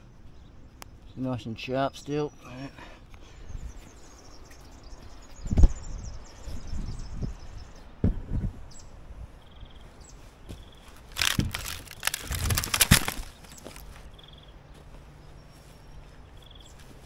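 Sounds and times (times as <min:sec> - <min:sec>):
wooden logs knocking and scraping: 0:10.5 - 0:14.1
bird chirps: 0:11.6 - 0:16.9.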